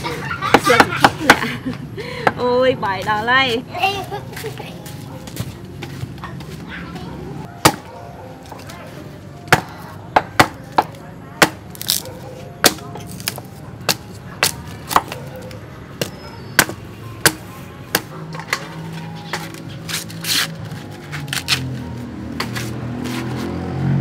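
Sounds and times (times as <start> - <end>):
cleaver chopping plant stalk: 10.3 - 12.0, 12.6 - 15.2.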